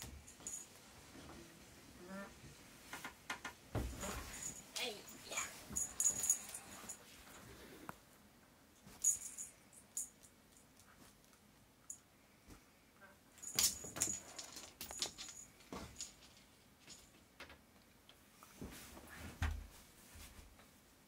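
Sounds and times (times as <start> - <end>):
cat toy jingling: 4.1 - 7.0.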